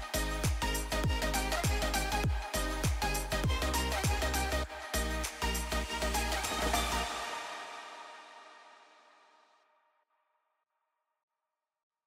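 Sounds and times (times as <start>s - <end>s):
electronic music with kick drum: 0.0s - 8.4s.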